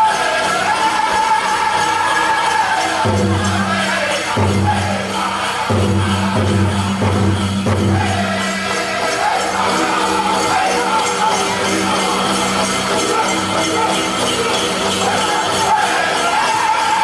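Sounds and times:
group singing in unison: 0.0 - 17.0
jingling bells: 0.0 - 17.0
steady drumbeat: 3.0 - 16.4.

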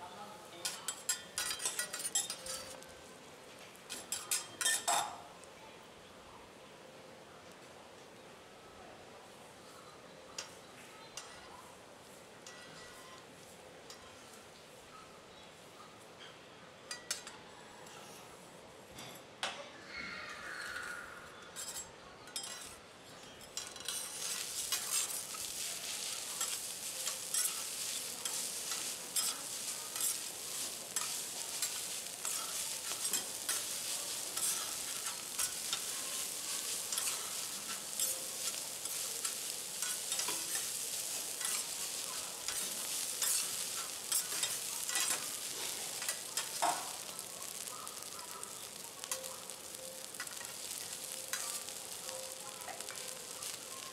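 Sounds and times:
fried rice sizzling on a griddle: 0.0 - 5.5, 7.4 - 18.2, 21.6 - 53.9
metal spatulas tapping griddle: 0.6 - 2.8, 3.9 - 5.1, 16.9 - 17.3, 21.6 - 48.1, 49.0 - 53.6.

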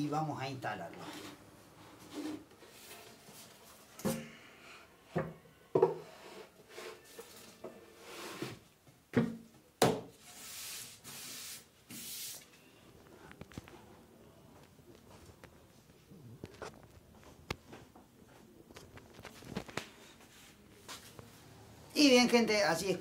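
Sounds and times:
wood scraping on wood: 1.0 - 3.2, 6.0 - 8.6
wooden knocks and thumps: 5.2 - 6.0.

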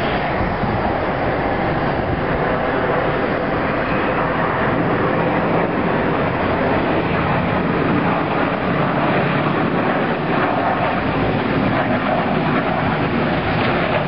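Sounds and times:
jet engine noise: 0.0 - 14.0.

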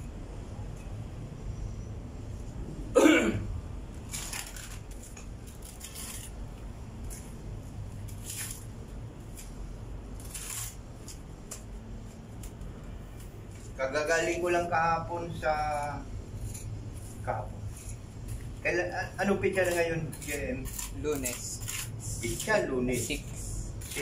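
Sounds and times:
trowel scraping mortar: 18.7 - 24.0.

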